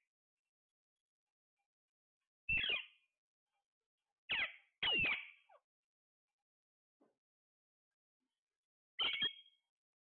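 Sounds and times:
parakeet calls: 0:02.5 - 0:03.1, 0:04.3 - 0:05.6, 0:09.0 - 0:09.6.

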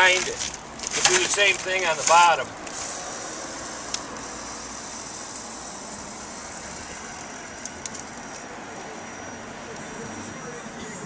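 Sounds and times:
road traffic hum: 0:00.0 - 0:11.0.

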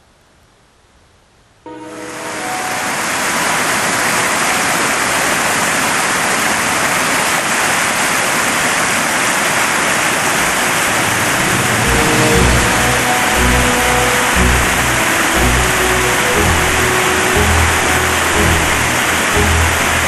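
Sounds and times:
stream rushing over boulders: 0:01.9 - 0:20.0.

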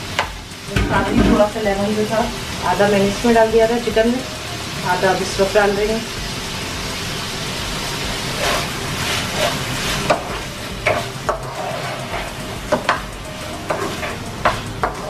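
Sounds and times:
food sizzling in oil: 0:00.0 - 0:15.0
wooden spoon scraping a pan: 0:08.3 - 0:13.0, 0:13.6 - 0:15.0.

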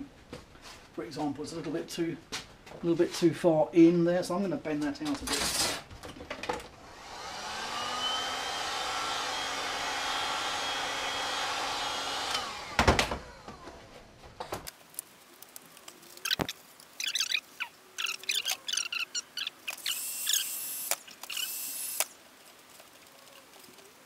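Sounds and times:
heat gun fan whining: 0:06.8 - 0:13.9, 0:19.8 - 0:22.2.

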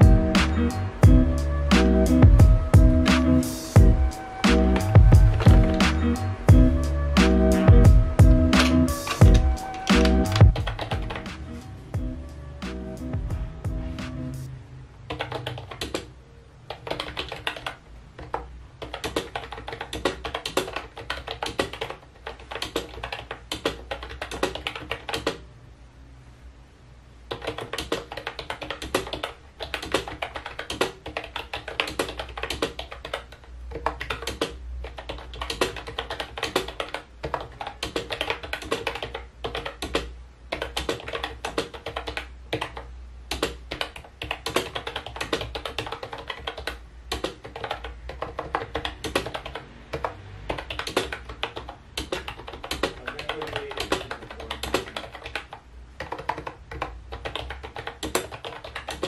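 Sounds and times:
clicky keyboard typing: 0:08.4 - 0:11.4, 0:15.1 - 0:25.4, 0:27.3 - 0:59.0.

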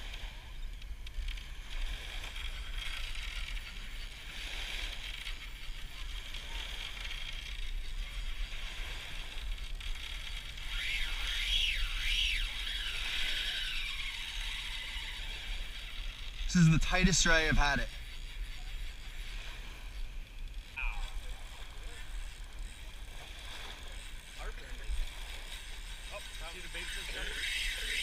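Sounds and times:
fishing reel drag clicking buzz: 0:00.0 - 0:28.0.

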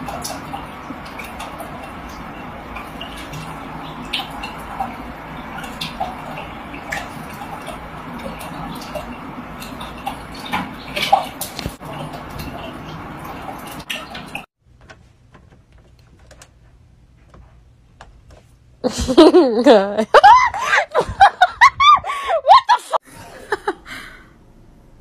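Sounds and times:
trickle of running water: 0:00.0 - 0:14.5
water splashing in aquarium: 0:00.0 - 0:14.5.

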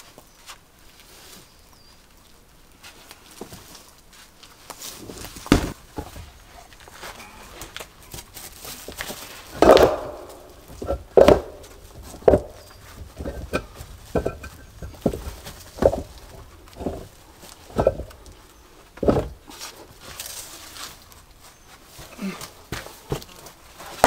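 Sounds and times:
dull knocks and thuds: 0:05.4 - 0:06.3, 0:09.6 - 0:17.1, 0:17.7 - 0:18.2, 0:19.0 - 0:19.5.

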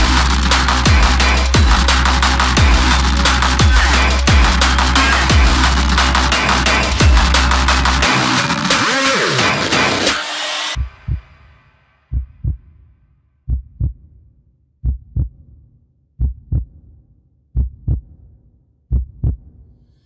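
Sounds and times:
heartbeat thumps: 0:00.0 - 0:07.5, 0:10.8 - 0:11.3, 0:12.1 - 0:12.7, 0:13.5 - 0:14.1, 0:14.8 - 0:15.6, 0:16.2 - 0:16.9, 0:17.6 - 0:18.2, 0:18.9 - 0:19.6
electronic music: 0:00.0 - 0:10.8.

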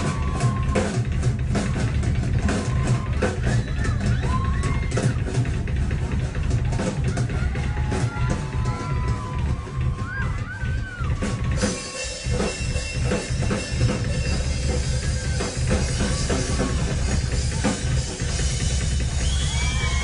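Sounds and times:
audience shouts and whoops: 0:00.0 - 0:05.3, 0:06.6 - 0:12.1, 0:15.0 - 0:18.0, 0:19.0 - 0:20.0
drum kit playing: 0:00.0 - 0:20.0.

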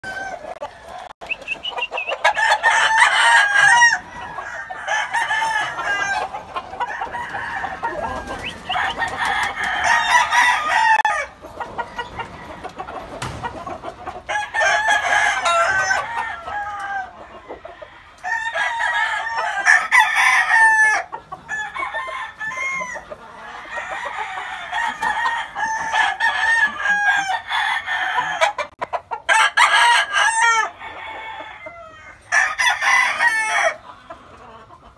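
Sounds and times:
clucking: 0:00.0 - 0:27.5, 0:28.1 - 0:29.7, 0:30.3 - 0:34.9
roosters crowing: 0:00.0 - 0:34.7.

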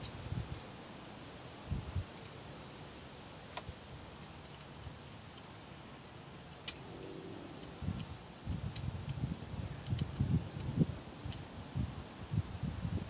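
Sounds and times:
insects droning: 0:00.0 - 0:13.0
faint sharp clicks: 0:03.5 - 0:04.7.

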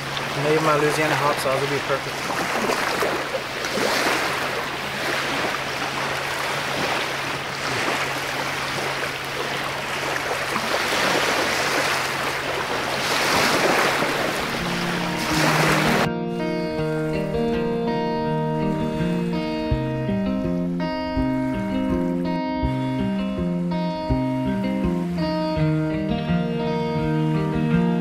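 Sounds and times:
small waves washing ashore: 0:00.0 - 0:16.1.

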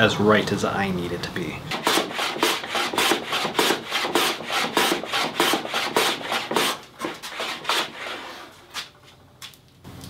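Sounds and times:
hand plane scraping wood: 0:01.7 - 0:08.9.

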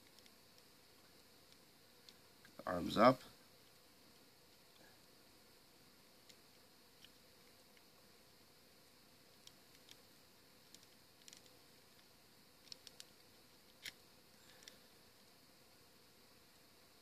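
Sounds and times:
plastic toy parts clicking: 0:10.7 - 0:11.6, 0:12.6 - 0:13.1.

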